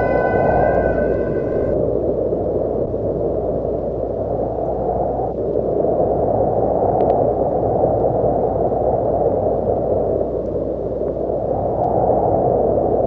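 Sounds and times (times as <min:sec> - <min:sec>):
low rushing noise: 0:00.0 - 0:02.1.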